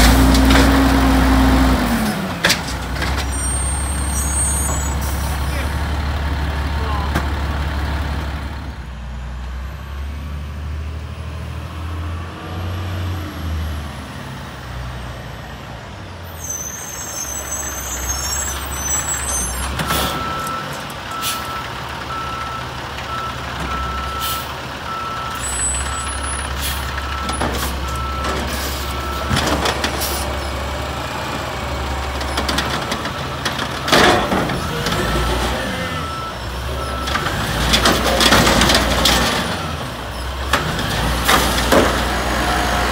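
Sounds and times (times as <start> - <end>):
garbage truck diesel engine running: 17.5 - 42.9.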